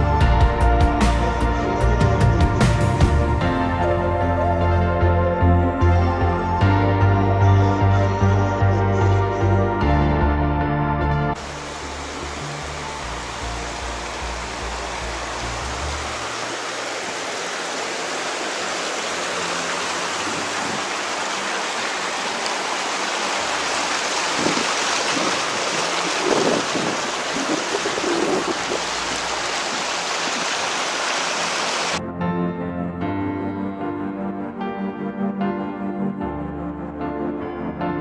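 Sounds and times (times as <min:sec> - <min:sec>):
background music: 0:00.0 - 0:16.3, 0:32.0 - 0:38.0
flowing water rushing: 0:11.4 - 0:32.0.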